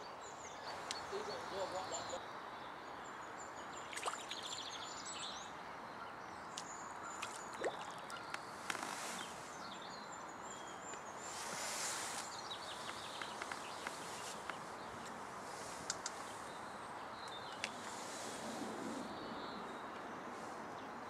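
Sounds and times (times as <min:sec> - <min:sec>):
birds chirping and singing: 0:00.0 - 0:18.3
steady background hiss: 0:08.2 - 0:21.0
faint clicks: 0:12.2 - 0:15.2, 0:15.8 - 0:16.3.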